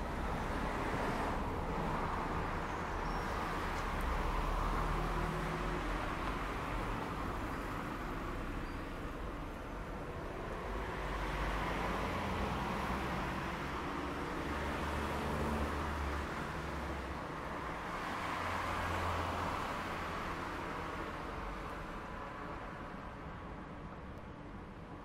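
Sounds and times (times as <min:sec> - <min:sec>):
car engines and tyre noise: 0:00.0 - 0:25.0.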